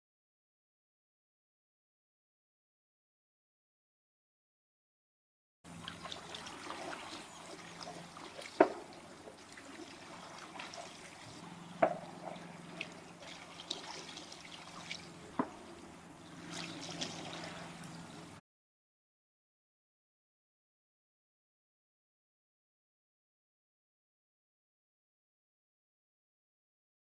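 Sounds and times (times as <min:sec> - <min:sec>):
water trickling and dripping: 0:05.7 - 0:18.4.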